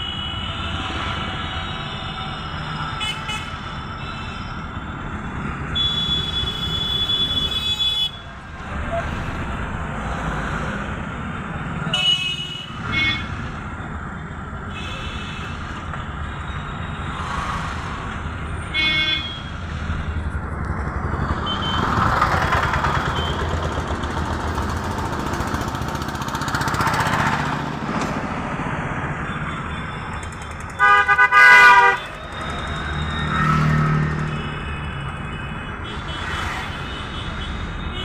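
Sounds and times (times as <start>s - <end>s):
vehicle engine and road noise: 0.0s - 38.0s
loud vehicle horn blasts: 30.8s - 32.1s.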